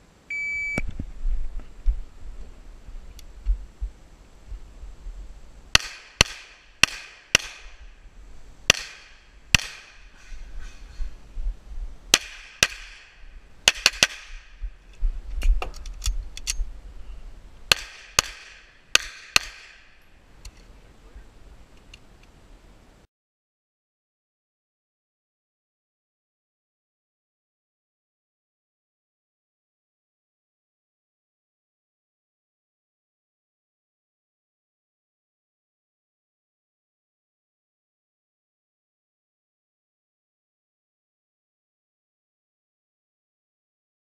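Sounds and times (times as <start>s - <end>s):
pistol shots: 5.8s - 7.8s, 8.7s - 10.1s, 12.1s - 14.5s, 17.7s - 19.9s.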